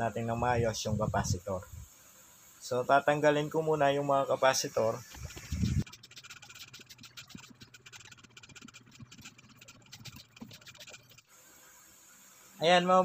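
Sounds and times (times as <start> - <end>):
soldering iron crackling on solder: 4.7 - 11.3.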